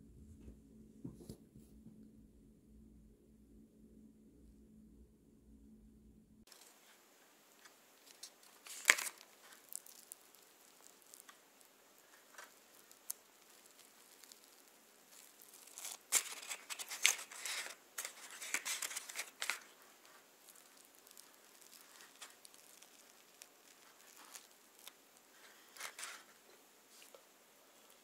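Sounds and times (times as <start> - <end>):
paper liner crinkling: 6.5 - 28.0
crusty bread tearing and crackling: 7.6 - 28.0.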